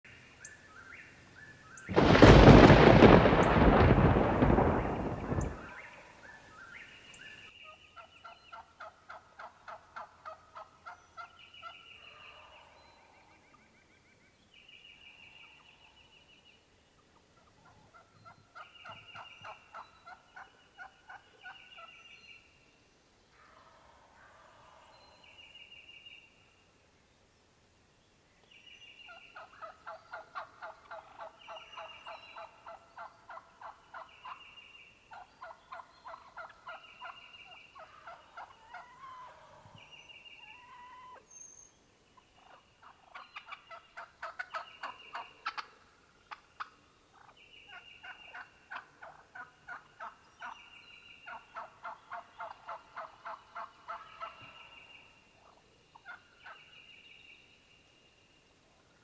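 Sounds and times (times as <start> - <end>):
turkeys calling: 8.0 - 12.8, 17.2 - 21.9, 29.1 - 41.3, 42.4 - 54.7, 55.4 - 56.7.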